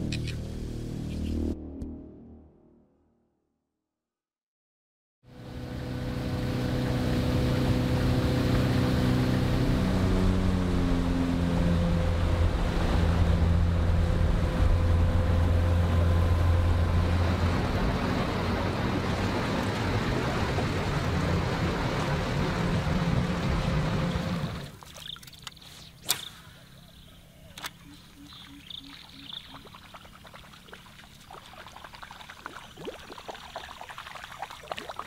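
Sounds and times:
boat motor running: 0:05.3 - 0:25.6, 0:26.6 - 0:34.1
wind and water rushing: 0:05.4 - 0:25.0.

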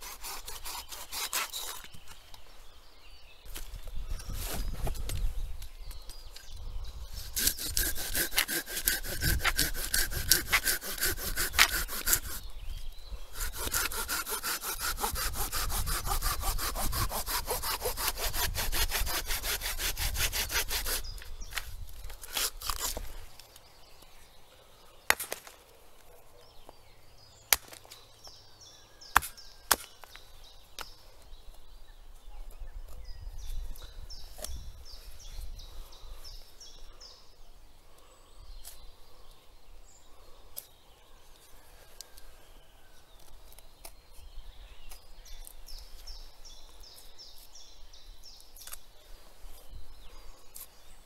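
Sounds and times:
hand saw cutting wood: 0:00.0 - 0:01.9, 0:07.2 - 0:12.5, 0:13.4 - 0:21.2.

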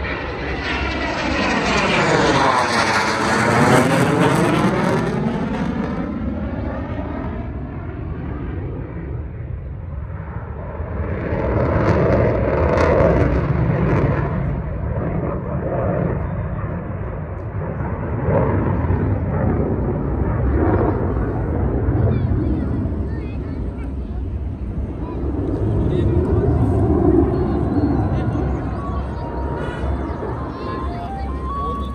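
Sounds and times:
fighter jet engine rumble: 0:00.0 - 0:31.9.

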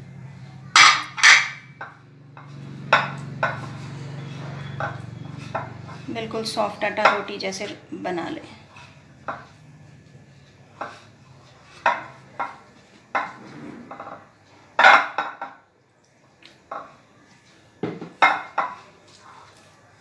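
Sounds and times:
hands mixing crumbly dough: 0:18.6 - 0:20.0.

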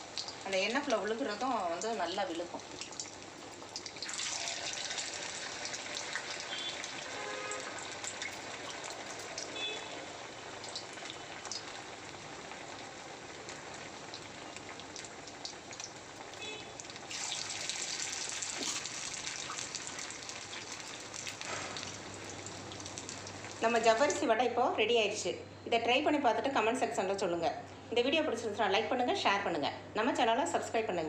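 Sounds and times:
deep-frying sizzle and crackle: 0:00.0 - 0:24.8.

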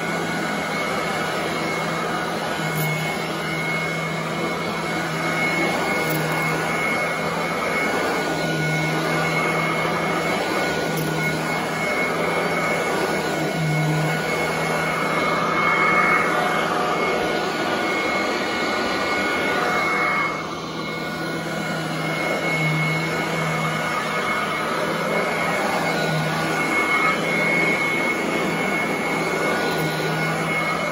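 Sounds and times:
vacuum cleaner running on carpet: 0:00.0 - 0:30.9.

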